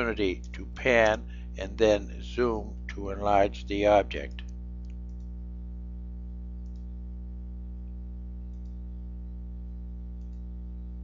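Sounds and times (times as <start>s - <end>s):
electrical hum: 0.0s - 11.0s
computer mouse clicks: 4.3s - 5.3s, 6.6s - 6.9s, 8.5s - 8.8s, 10.2s - 10.5s.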